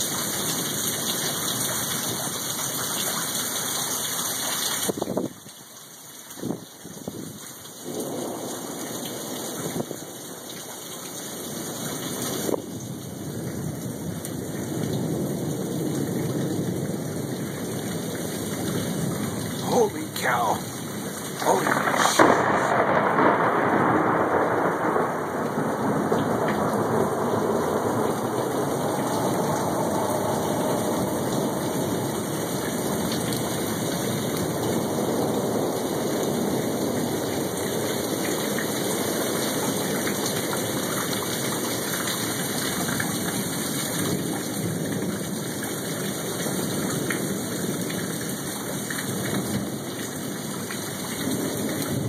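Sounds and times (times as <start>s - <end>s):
heavy rain falling: 0.0s - 52.0s
thunder rumble: 12.4s - 39.8s.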